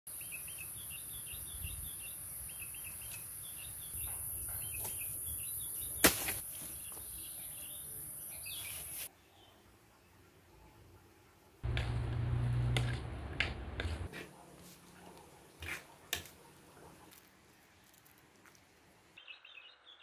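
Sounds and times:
birds chirping: 0.1 - 6.1, 6.7 - 9.6, 19.2 - 20.0.

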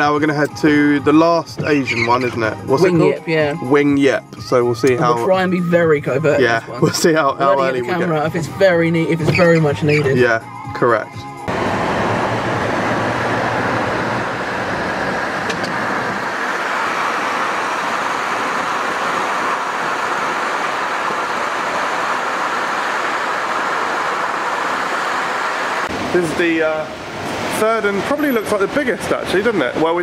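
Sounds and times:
passing traffic: 11.3 - 30.0
car road noise from inside: 11.4 - 26.2.

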